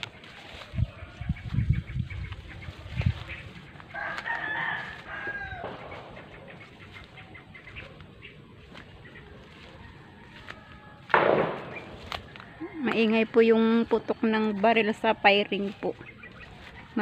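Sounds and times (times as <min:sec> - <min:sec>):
rooster crowing: 0:03.9 - 0:06.0, 0:09.6 - 0:11.1
footstep thump: 0:11.1 - 0:12.2.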